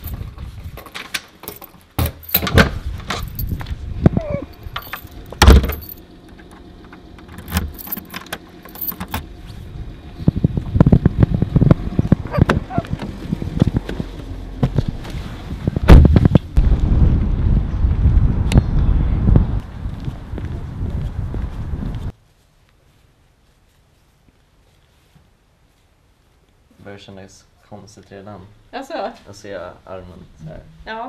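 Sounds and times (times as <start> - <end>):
keys jangling at a lock: 0.0 - 3.7, 4.3 - 6.0, 7.2 - 9.2
door thumping shut: 2.0 - 3.3, 5.3 - 5.9.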